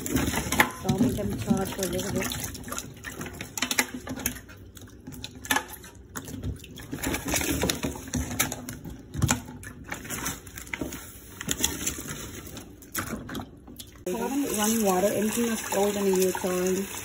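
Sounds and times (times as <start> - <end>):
running tap water: 0.0 - 8.3, 13.9 - 17.0.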